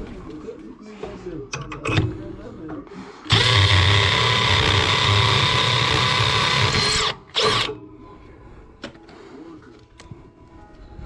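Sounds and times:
cordless drill motor whine: 0:03.3 - 0:07.7.

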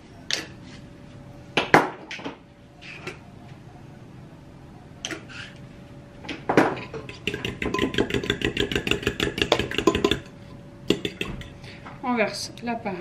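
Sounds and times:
utensil clinking against ceramic bowl: 0:07.0 - 0:10.3, 0:10.9 - 0:11.6.

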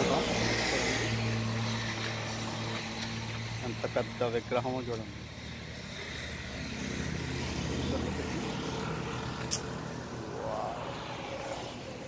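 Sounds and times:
vehicle engine rumbling past: 0:00.0 - 0:12.0
sharp click: 0:09.4 - 0:09.7.

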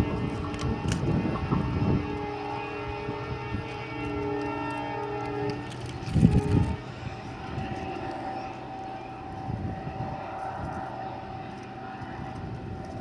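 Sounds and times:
distant train rumbling: 0:00.0 - 0:13.0.

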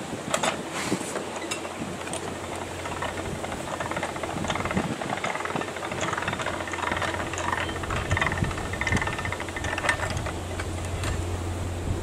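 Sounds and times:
hiss of noise: 0:00.0 - 0:02.1
diesel engine running: 0:02.0 - 0:12.0.

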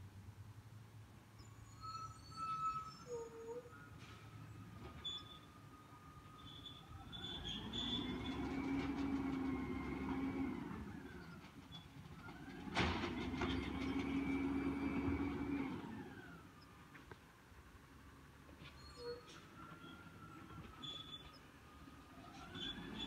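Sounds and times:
truck engine hum: 0:03.7 - 0:18.5
hydraulic whine: 0:12.6 - 0:16.7.

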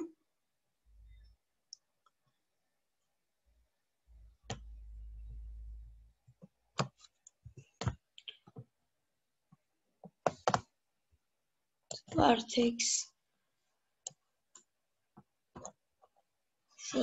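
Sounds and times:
low hum: 0:04.1 - 0:06.1.

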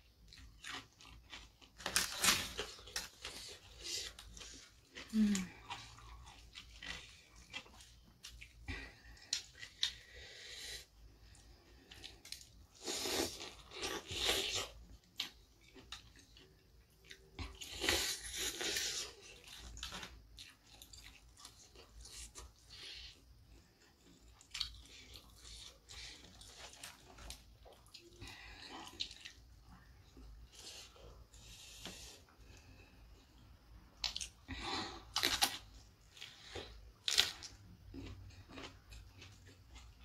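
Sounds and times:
quiet chewing: 0:00.1 - 0:40.0
crunchy bites of fried chicken: 0:00.2 - 0:08.6, 0:33.9 - 0:40.0.

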